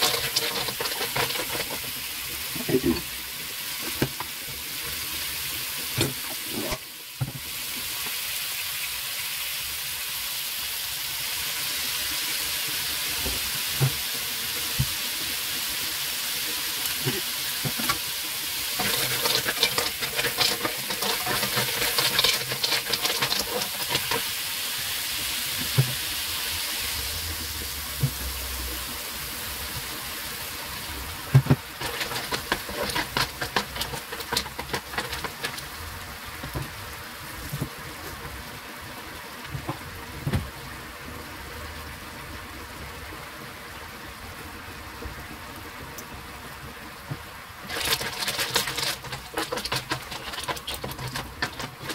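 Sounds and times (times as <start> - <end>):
spatula and shells clattering: 0.0 - 2.0, 18.8 - 24.3, 31.5 - 35.6, 47.7 - 51.9
clams sizzling in a wok: 0.0 - 51.9.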